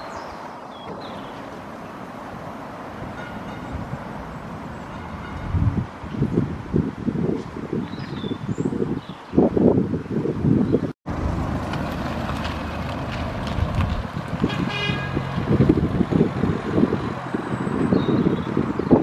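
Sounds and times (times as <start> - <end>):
vehicle engine humming: 0.0 - 6.8, 11.1 - 19.0
wind buffeting microphone: 0.1 - 19.0
horn toot: 14.4 - 15.4.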